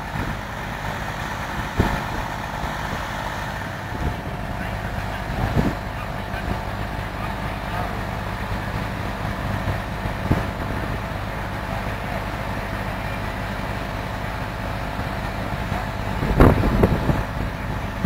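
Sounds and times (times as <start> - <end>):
farm machinery droning: 0.0 - 18.0.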